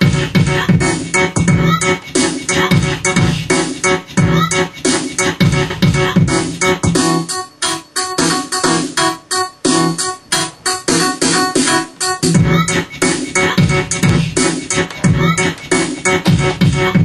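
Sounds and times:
drum pattern: 0.0 - 7.2, 10.8 - 17.0
electric piano chords: 0.8 - 17.0.

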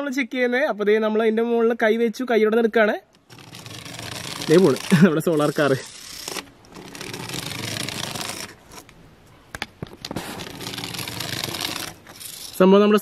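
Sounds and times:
toy car motor whirring: 3.3 - 8.6, 10.4 - 12.6.

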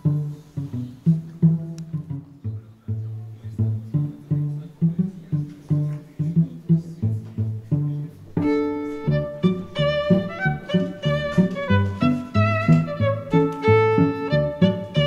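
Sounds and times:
background music with low notes: 0.0 - 15.0
higher held notes: 7.6 - 15.0.

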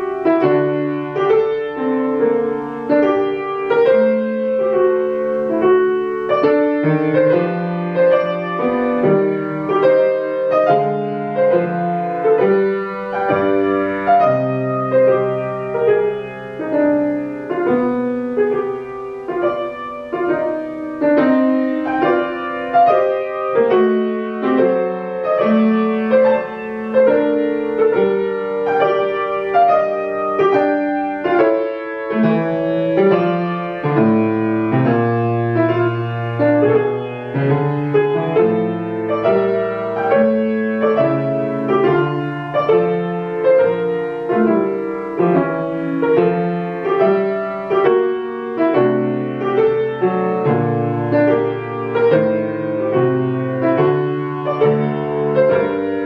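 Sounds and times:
solo classical piano: 0.0 - 56.0.

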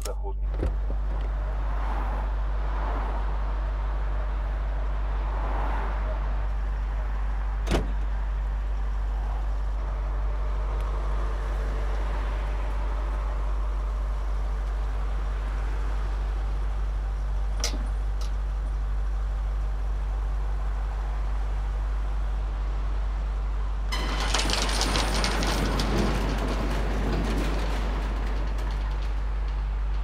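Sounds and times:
highway traffic rumble: 0.0 - 30.0
car door slamming: 7.6 - 8.0
gate chain clicking: 23.9 - 30.0.

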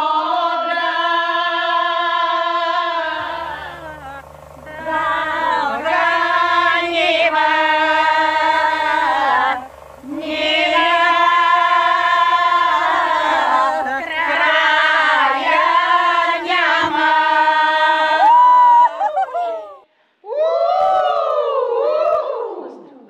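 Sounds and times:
women singing a cappella: 0.0 - 19.6
high held sung note: 3.0 - 17.6.

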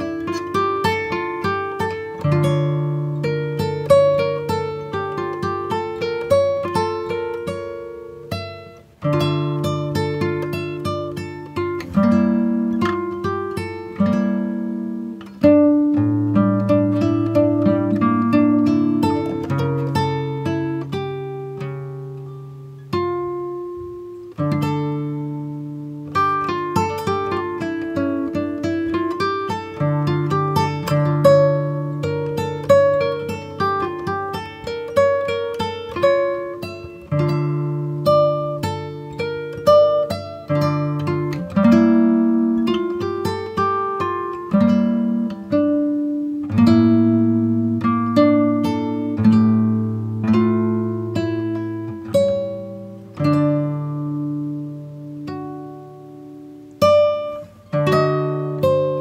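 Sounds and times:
plucked acoustic guitar: 0.0 - 59.0.

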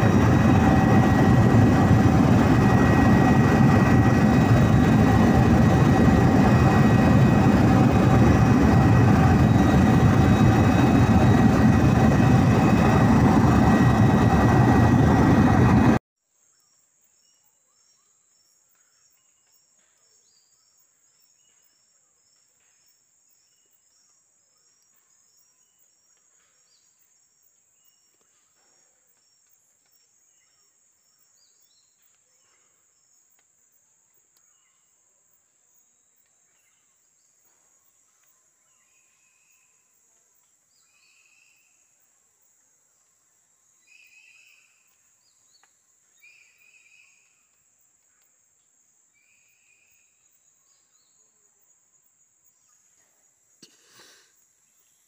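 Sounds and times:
high-pitched insect drone: 0.0 - 15.9
aircraft engine drone with whine: 0.0 - 16.0.

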